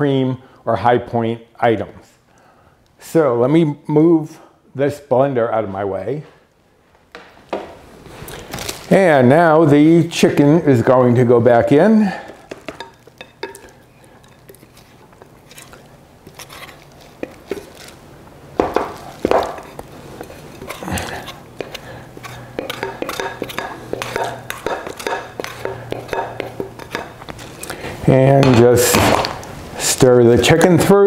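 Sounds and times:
spoon scraping glass bowl: 12.3 - 18.0, 19.0 - 27.7.

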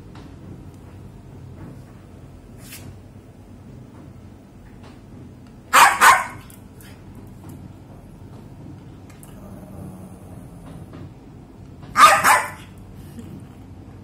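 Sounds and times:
dog barking: 5.7 - 6.5, 11.9 - 12.7.

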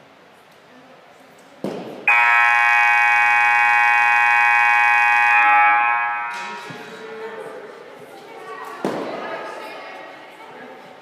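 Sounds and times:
scoreboard buzzer: 2.1 - 6.6.

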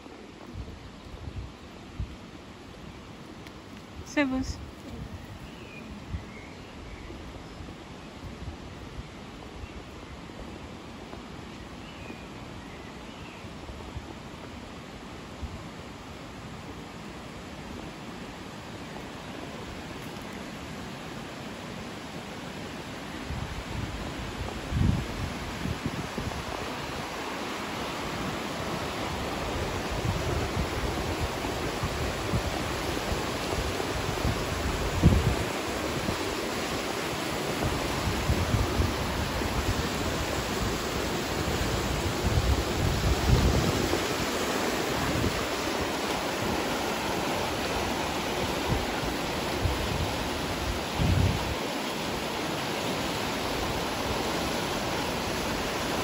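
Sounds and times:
river rushing over rocks: 13.5 - 56.0
wind bumps on microphone: 23.2 - 27.0, 29.1 - 36.3, 37.5 - 46.8, 47.4 - 51.6.

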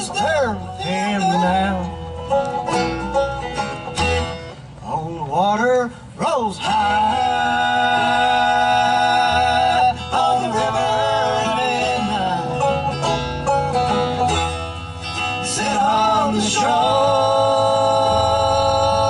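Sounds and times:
man singing: 0.0 - 2.0, 4.8 - 12.7, 15.4 - 19.0
bluegrass band playing: 0.0 - 19.0.

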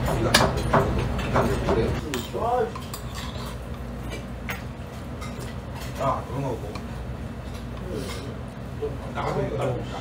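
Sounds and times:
metal spoon scraping a pot: 2.8 - 3.7.

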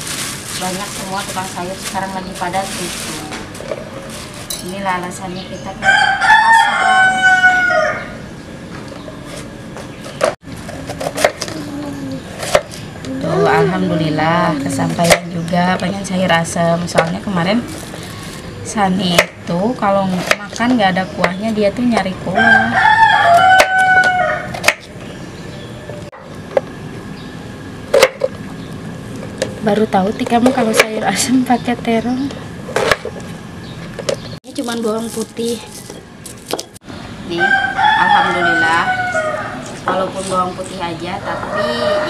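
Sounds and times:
rooster crowing: 5.8 - 8.3, 22.3 - 24.7, 37.3 - 39.8, 41.2 - 42.0.

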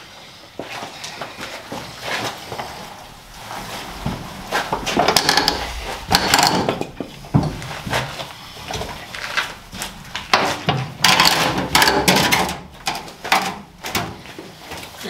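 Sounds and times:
fuel tank knocking and scraping: 2.5 - 14.2.

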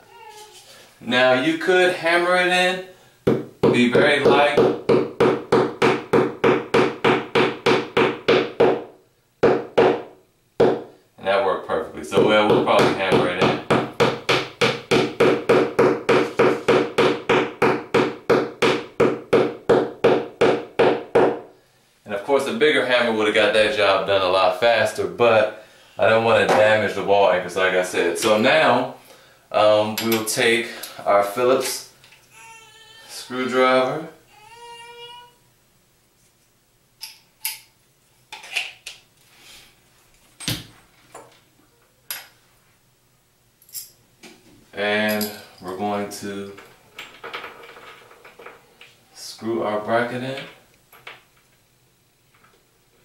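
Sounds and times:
metal hardware clinking: 45.0 - 45.8.

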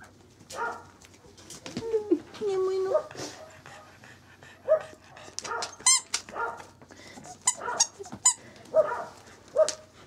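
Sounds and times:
puppy whining and squeaking: 5.6 - 6.2, 7.2 - 8.4.

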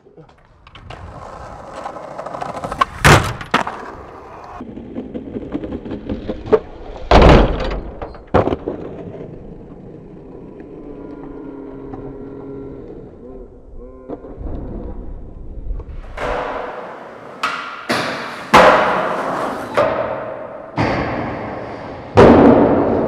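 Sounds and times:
skateboard wheels rolling on asphalt: 0.1 - 7.1, 8.2 - 13.2, 14.2 - 20.7
skateboard clacks and slaps: 0.3 - 10.8, 14.1 - 23.0.

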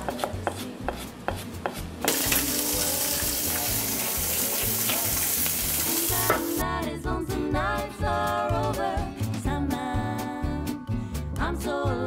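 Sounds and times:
knife chopping on cutting board: 0.0 - 2.5
food sizzling in a pan: 2.1 - 6.6.

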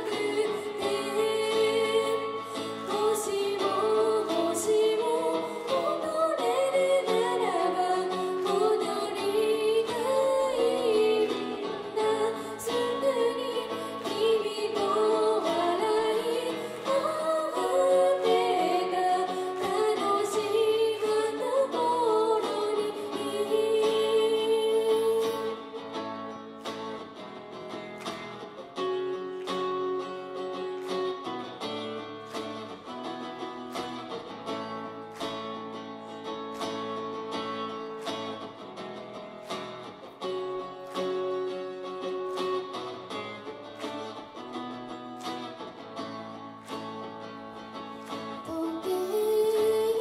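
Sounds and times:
woman singing: 0.0 - 26.1, 48.3 - 50.0.

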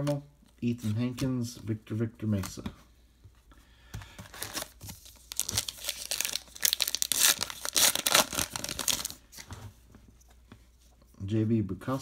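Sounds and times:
wrapper tearing and crinkling: 4.3 - 9.2.

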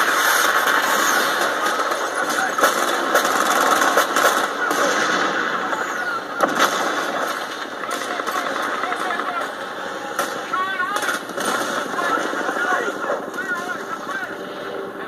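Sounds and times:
gunshots: 0.0 - 14.4
continuous roar: 0.0 - 15.0.

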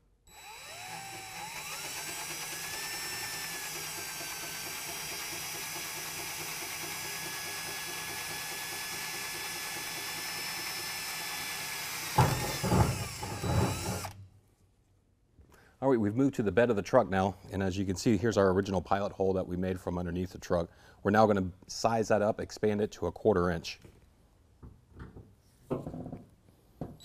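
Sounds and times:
cordless drill whining: 0.3 - 14.2.

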